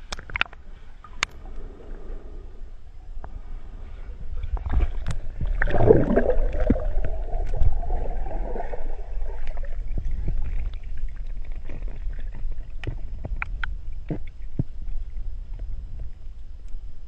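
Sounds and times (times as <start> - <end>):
clicks and crackles: 0.0 - 1.6
muffled underwater rumble: 0.0 - 17.0
water gurgling surge: 4.5 - 11.1.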